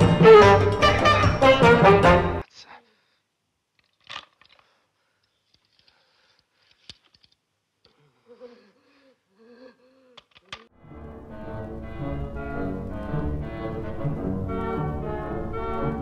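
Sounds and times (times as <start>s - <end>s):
quiet film soundtrack: 0.0s - 3.7s, 4.8s - 16.0s.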